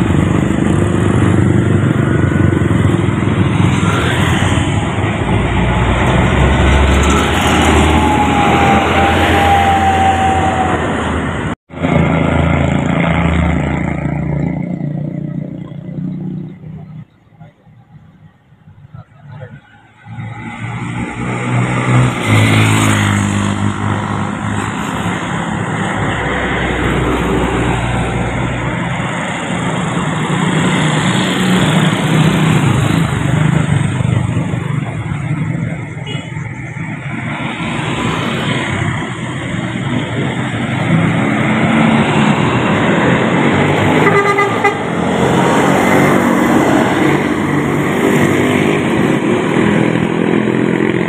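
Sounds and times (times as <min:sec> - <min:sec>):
bus passing: 0:00.0 - 0:51.0
motorcycles passing: 0:00.0 - 0:51.0
truck passing: 0:00.0 - 0:51.0
vehicle horns: 0:36.0 - 0:36.6, 0:43.9 - 0:45.6.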